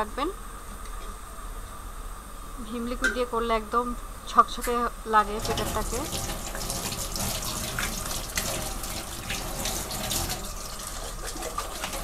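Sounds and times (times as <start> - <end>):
water splashing: 5.3 - 12.0.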